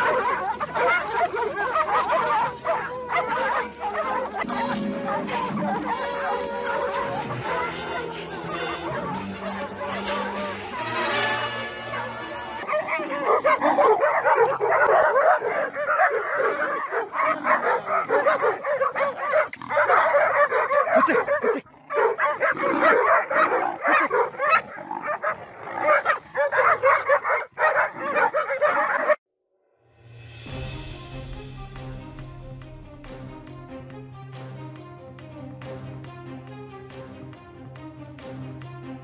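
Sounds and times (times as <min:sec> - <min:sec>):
dogs barking and yelping: 0:00.0 - 0:29.2.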